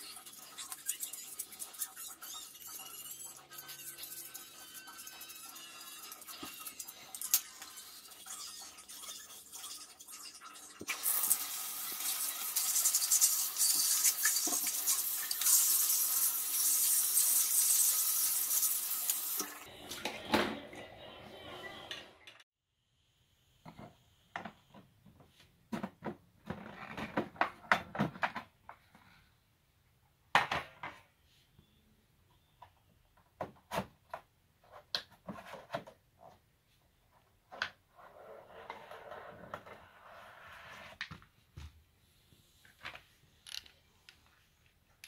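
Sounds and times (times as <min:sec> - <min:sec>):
shower water spraying on plastic: 0:10.8 - 0:19.5.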